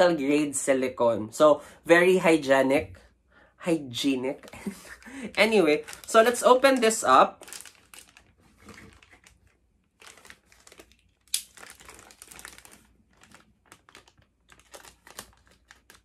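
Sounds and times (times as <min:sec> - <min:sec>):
plastic bag crinkling: 0:04.1 - 0:16.0.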